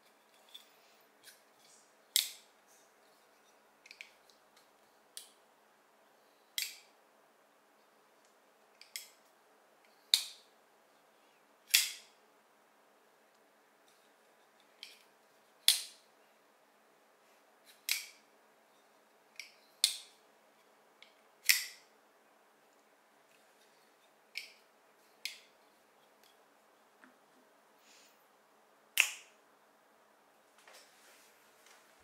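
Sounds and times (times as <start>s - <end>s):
folding knife clicking: 11.7s - 12.1s, 21.4s - 21.8s.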